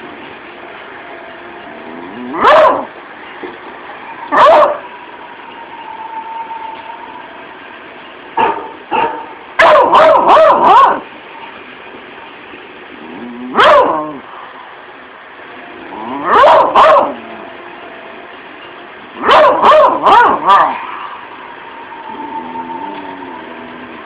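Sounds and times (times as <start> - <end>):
dog barking: 2.3 - 2.9, 4.3 - 4.9, 8.4 - 11.0, 13.5 - 14.2, 16.2 - 17.2, 19.2 - 20.8.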